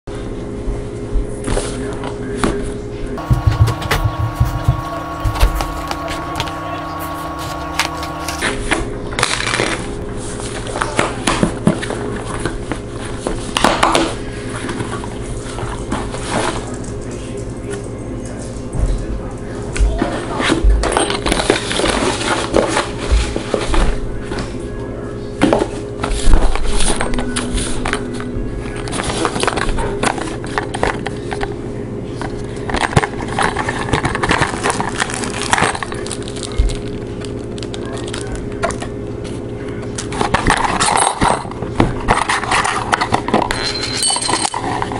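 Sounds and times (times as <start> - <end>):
steady low hum: 2.8 - 9.3
cardboard and paper rustling: 3.2 - 8.5, 32.2 - 38.7, 40.0 - 43.5.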